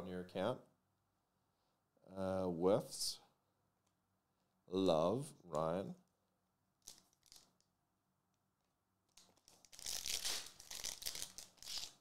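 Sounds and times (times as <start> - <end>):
foil pack tearing and crinkling: 9.6 - 12.0.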